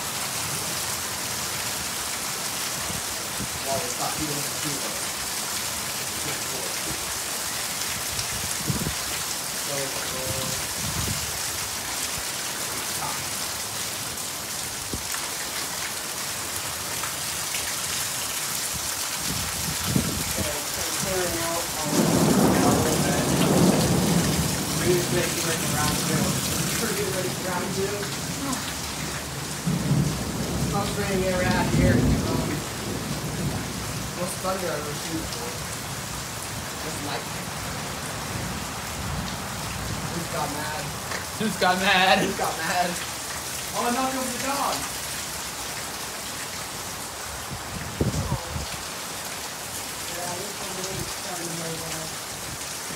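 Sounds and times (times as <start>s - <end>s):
heavy rain pouring: 0.0s - 52.9s
thunder rumbling: 19.7s - 34.3s.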